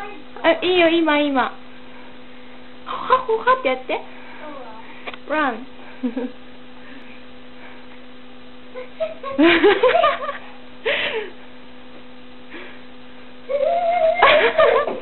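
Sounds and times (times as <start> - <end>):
electrical hum: 0.0 - 15.0
child laughing: 8.7 - 10.3, 13.5 - 15.0.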